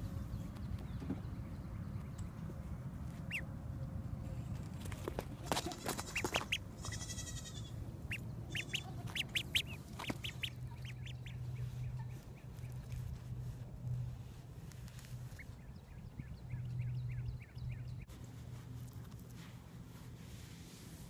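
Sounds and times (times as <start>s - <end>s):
duckling peeping: 3.1s - 3.5s, 5.6s - 13.2s, 15.1s - 18.1s.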